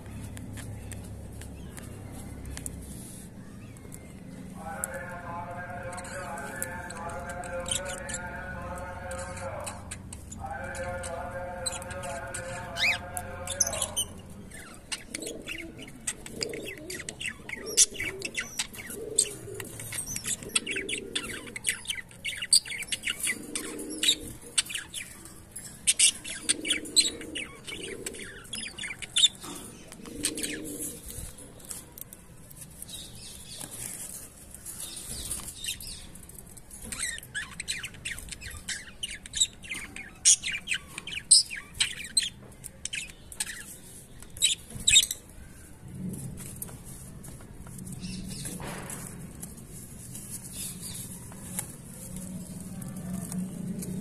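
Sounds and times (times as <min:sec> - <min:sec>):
cockatiels chirping: 0:09.2 - 0:30.6, 0:36.8 - 0:45.2.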